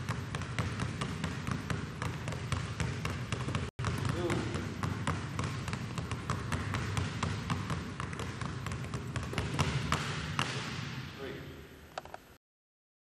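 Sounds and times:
basketballs dribbled on hardwood floor: 0:00.0 - 0:11.0.

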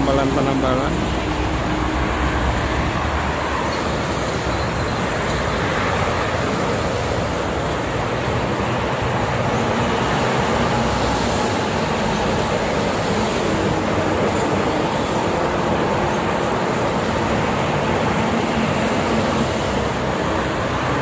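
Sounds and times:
highway traffic: 0:00.0 - 0:21.0.

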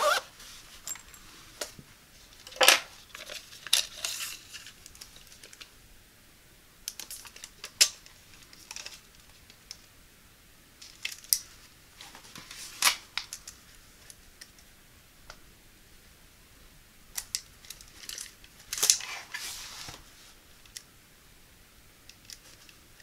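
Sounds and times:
soft rustling: 0:00.0 - 0:02.4, 0:17.8 - 0:20.6.

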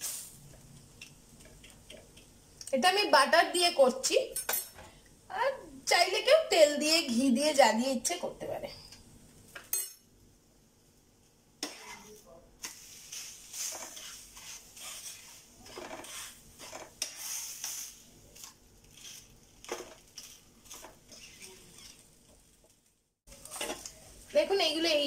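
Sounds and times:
light sizzling: 0:00.0 - 0:25.0
spatula scraping and tapping pan: 0:11.6 - 0:22.8.

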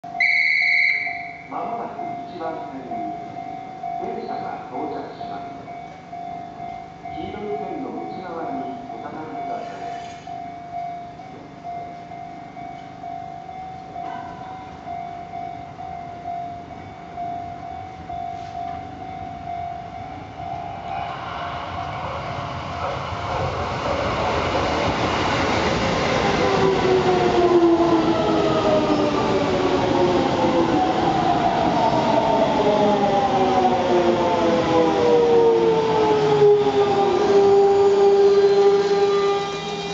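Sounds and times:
electric train running noise: 0:05.3 - 0:39.9
traction inverter whine: 0:14.6 - 0:39.9.

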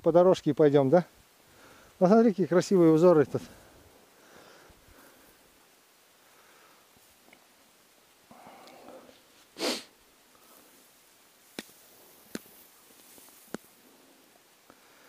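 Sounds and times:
soft breathing: 0:01.4 - 0:02.0, 0:03.3 - 0:07.3, 0:08.3 - 0:11.0, 0:11.7 - 0:15.0
loud sniff: 0:08.3 - 0:10.6.

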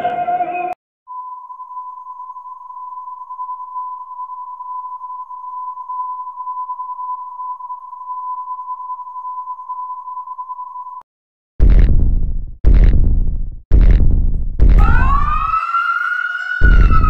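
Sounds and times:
electronic alarm tone: 0:01.1 - 0:11.0.

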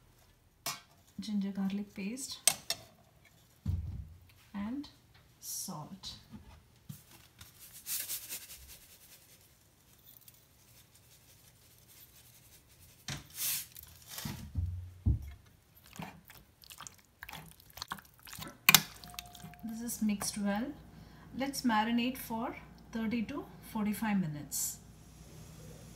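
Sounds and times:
wet squishing of chicken: 0:15.8 - 0:19.6.

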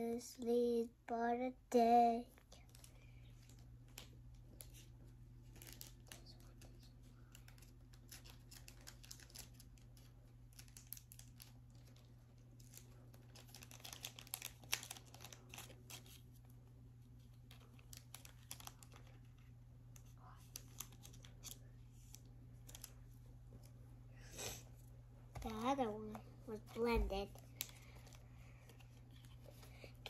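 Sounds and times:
card packaging crinkling: 0:02.5 - 0:23.8.

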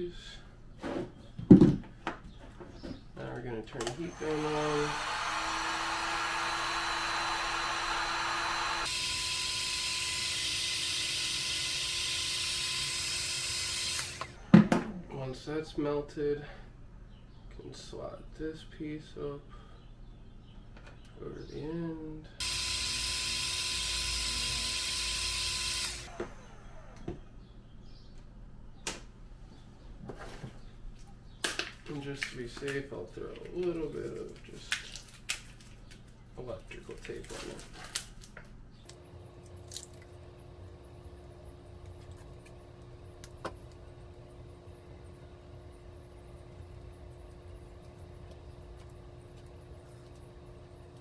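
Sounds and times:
heat gun blowing air: 0:04.0 - 0:14.3, 0:22.4 - 0:26.2.

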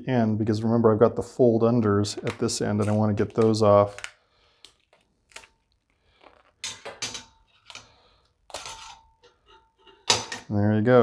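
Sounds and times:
vinyl film crackling: 0:02.4 - 0:06.8.

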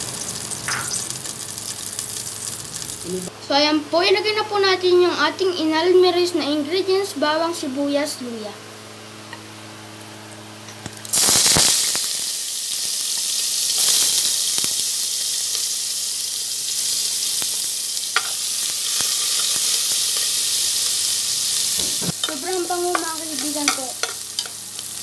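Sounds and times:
food sizzling in hot oil: 0:00.0 - 0:03.3, 0:10.8 - 0:25.0.

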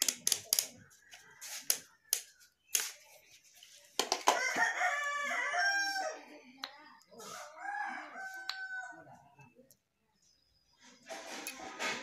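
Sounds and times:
rooster crowing: 0:04.3 - 0:06.2, 0:07.3 - 0:09.0.

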